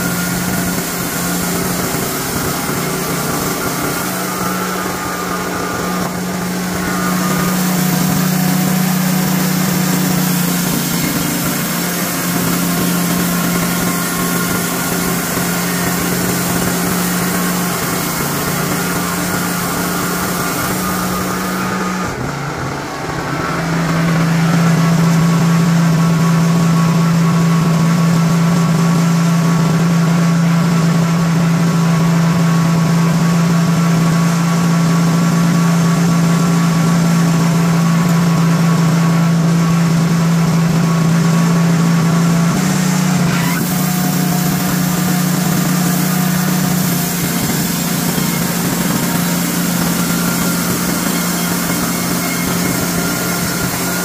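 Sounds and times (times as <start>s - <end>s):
sawmill engine running: 0.0s - 54.0s.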